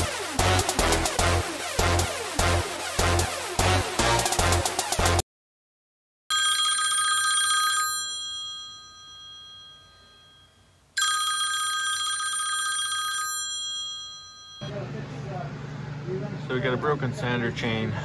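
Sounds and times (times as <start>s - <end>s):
electronic dance music: 0.0s - 5.2s
telephone ringing: 6.3s - 14.7s.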